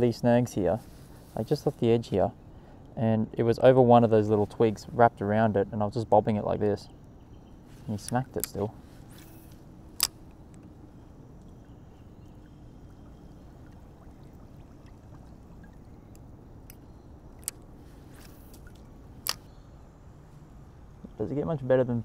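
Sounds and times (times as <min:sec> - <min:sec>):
water trickling: 0:06.9 - 0:21.7
sharp clicks: 0:10.0 - 0:10.7, 0:18.5 - 0:19.5.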